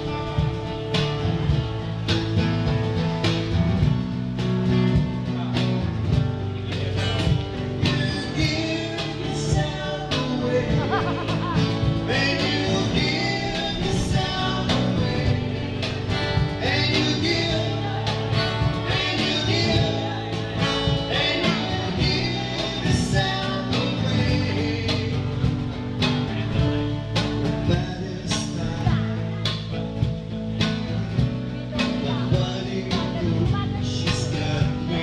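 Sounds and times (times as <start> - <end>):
guitar: 0.0 - 35.0
steady cajon beat: 0.0 - 35.0
man singing into a microphone: 6.8 - 26.7, 27.4 - 29.8, 31.1 - 35.0.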